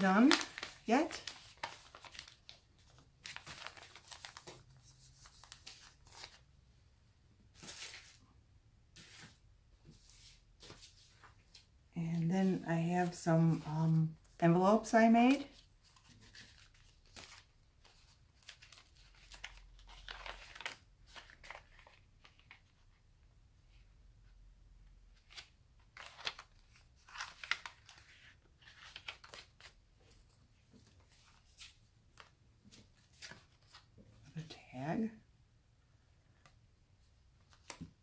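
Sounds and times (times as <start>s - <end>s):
paper rustling and crinkling: 0.0s - 6.4s, 7.5s - 8.2s, 15.2s - 23.0s, 25.2s - 34.6s.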